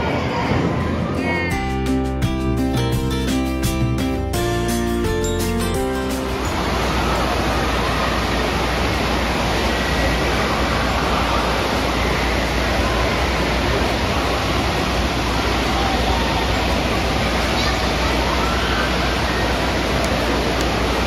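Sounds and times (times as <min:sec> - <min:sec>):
waves breaking and washing: 0:06.0 - 0:21.0.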